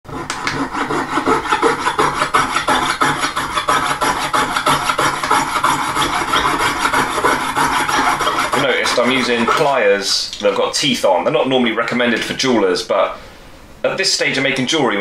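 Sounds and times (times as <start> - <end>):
saw rasping through metal: 0.1 - 9.9.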